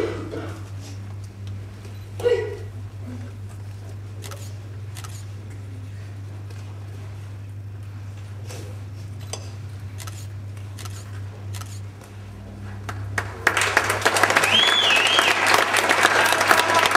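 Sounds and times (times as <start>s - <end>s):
steady low hum: 0.0s - 16.9s
hand clapping: 12.8s - 16.9s.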